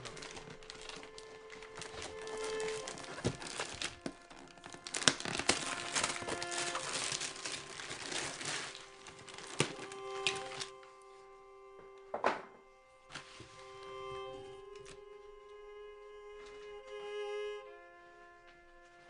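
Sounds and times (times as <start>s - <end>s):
wrapping paper tearing and crumpling: 0.0s - 10.8s.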